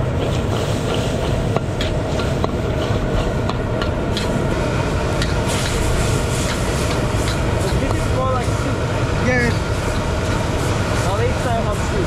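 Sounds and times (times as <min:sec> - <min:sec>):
low rumble and sizzle: 0:00.0 - 0:12.0
spatula clanking against wok: 0:06.4 - 0:08.1.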